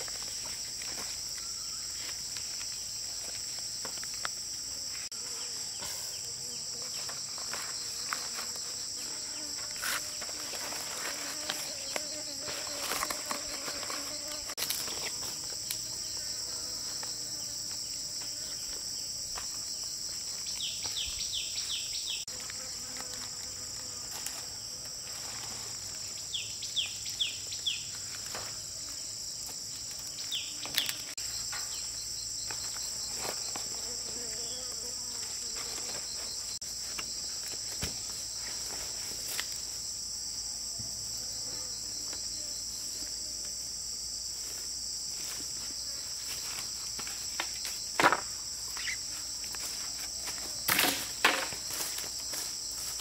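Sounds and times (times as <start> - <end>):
insects chorus: 0.0 - 53.0
leaves rustling: 7.2 - 16.0.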